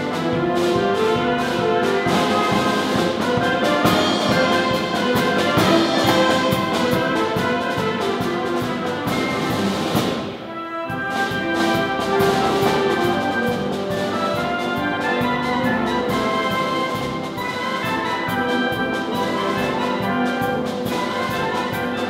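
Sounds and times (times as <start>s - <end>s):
drum kit beat: 0.0s - 10.3s
concert band playing: 0.0s - 22.0s.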